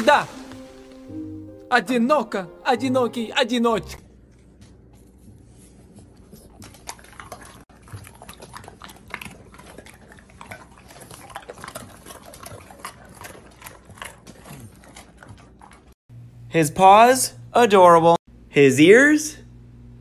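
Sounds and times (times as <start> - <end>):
dogs crunching biscuit treats: 4.0 - 16.0.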